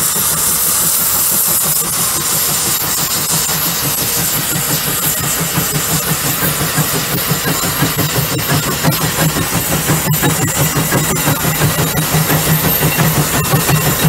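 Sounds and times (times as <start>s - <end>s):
rhythmic exhaust chuffs: 0.0s - 14.0s
steam hissing: 0.0s - 14.0s.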